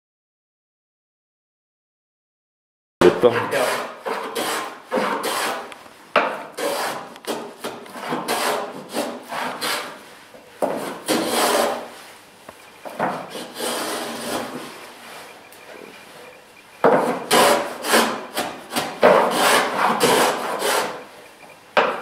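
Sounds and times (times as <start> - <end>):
hand plane shaving wood: 3.1 - 12.0, 12.8 - 15.3, 16.8 - 21.1.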